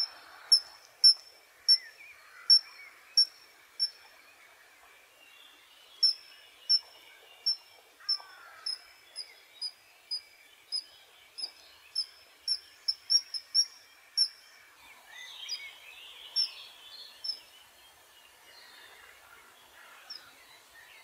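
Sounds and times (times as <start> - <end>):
kingfisher calling: 0.0 - 1.8, 6.0 - 9.3, 11.4 - 14.4
birds chirping softly: 0.0 - 21.0
insects trilling: 6.0 - 10.8, 11.4 - 14.4.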